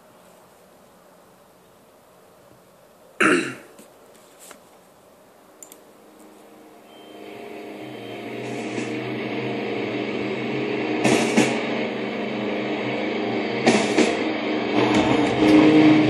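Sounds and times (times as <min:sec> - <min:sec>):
person coughing: 0:03.2 - 0:03.8
droning music of held notes: 0:06.4 - 0:16.0.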